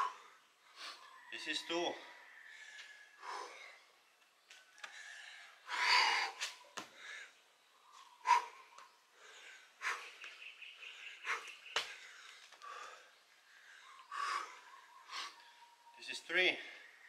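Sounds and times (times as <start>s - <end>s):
person breathing hard: 2.5s - 4.0s, 4.8s - 7.4s, 8.2s - 10.2s, 10.8s - 15.5s.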